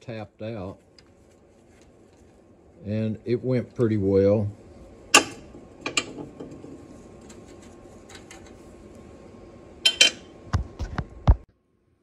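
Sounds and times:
low steady shop hum: 0.0 - 12.0
ringing metallic clink: 9.9 - 10.2.

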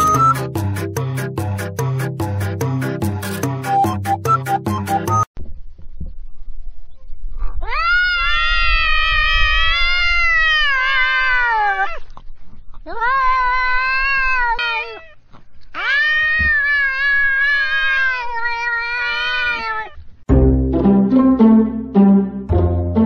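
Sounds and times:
cats yowling: 7.6 - 12.1, 12.9 - 20.0
plucked-string music: 20.3 - 23.0.

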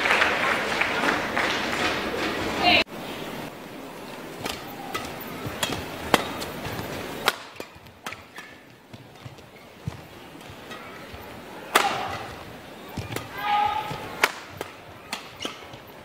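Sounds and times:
low arena hum: 0.0 - 16.0
racket striking shuttlecock: 4.3 - 16.0
badminton smash: 4.4 - 9.4, 10.4 - 15.9.

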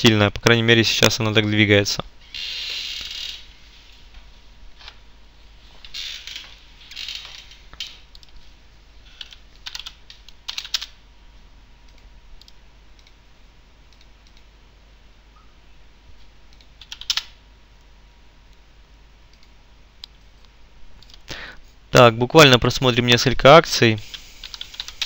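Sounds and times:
faint low hum: 0.0 - 25.0
computer keyboard keystrokes: 9.2 - 10.9, 16.5 - 17.3, 24.1 - 25.0.

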